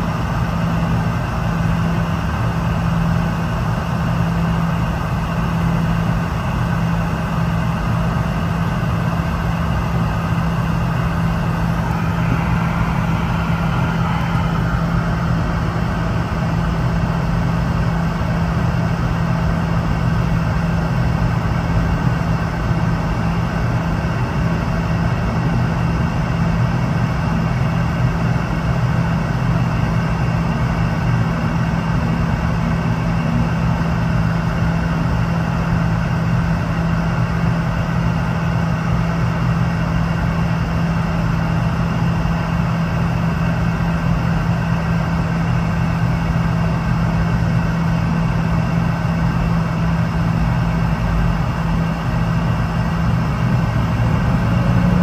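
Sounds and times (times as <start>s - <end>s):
airliner cabin drone: 0.0s - 55.0s.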